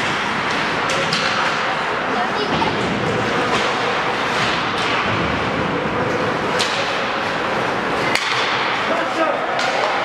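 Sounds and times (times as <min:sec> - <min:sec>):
hockey stick cracking puck: 0:00.0 - 0:01.6, 0:06.5 - 0:07.0, 0:08.0 - 0:08.9, 0:09.5 - 0:10.0
arena noise: 0:00.0 - 0:10.0.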